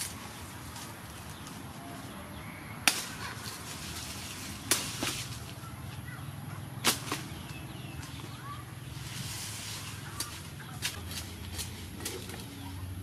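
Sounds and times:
cleaver chopping sugar cane: 2.8 - 5.6.

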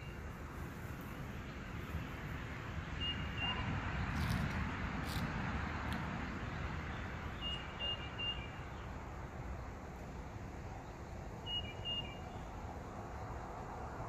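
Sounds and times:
traffic rumble: 0.0 - 14.0
bird chirping: 2.9 - 3.6, 6.9 - 9.0, 10.8 - 12.6.

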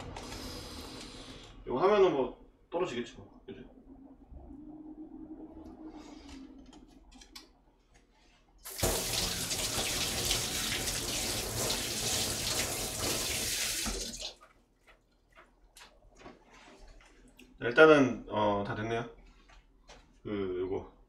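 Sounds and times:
water running into sink: 8.6 - 14.4.

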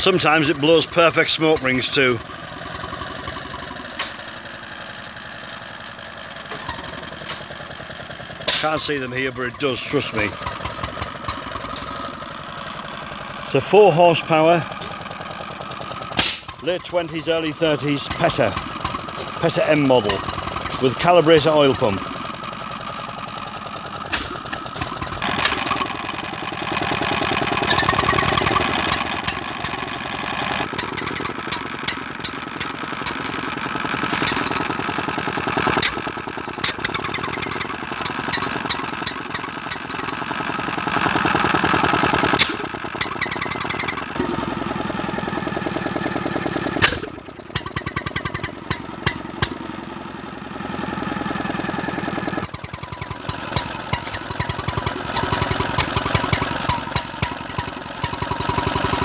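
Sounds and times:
stationary engine running: 0.0 - 59.0
sharp clicks: 52.4 - 59.0.

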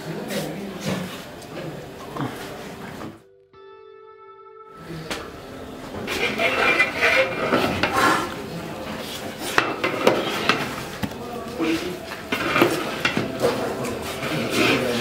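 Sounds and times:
metal ladle scraping rice in pot: 6.1 - 8.4, 9.4 - 10.8, 11.6 - 13.2.

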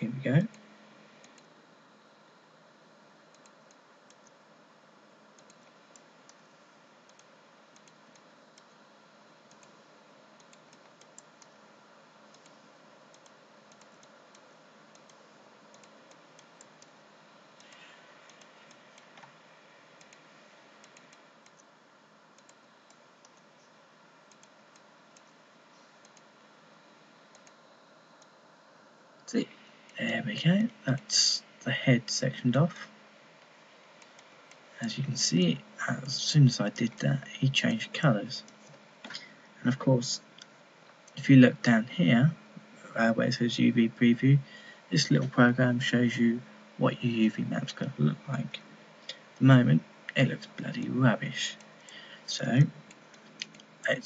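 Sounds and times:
low hiss of room tone: 0.0 - 54.0
computer mouse clicks: 1.2 - 1.5, 3.3 - 4.4, 5.3 - 6.4, 7.1 - 8.8, 9.4 - 9.8, 10.4 - 11.6, 12.3 - 17.0, 17.6 - 19.4, 20.0 - 21.7, 22.4 - 23.7, 24.3 - 26.3, 27.3 - 27.6, 52.8 - 53.8.

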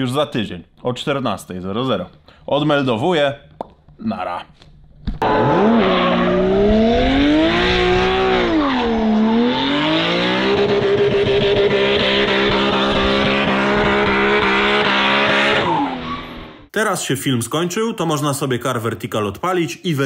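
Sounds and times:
tyres screeching: 5.2 - 6.9
car engine revving: 5.2 - 16.7.

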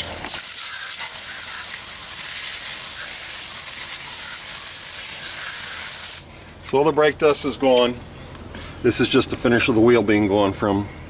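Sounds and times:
hose nozzle spraying water: 0.2 - 6.3.

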